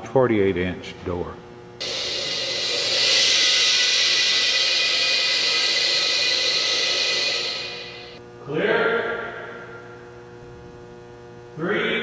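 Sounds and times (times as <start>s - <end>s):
compressed air hissing: 1.8s - 8.2s.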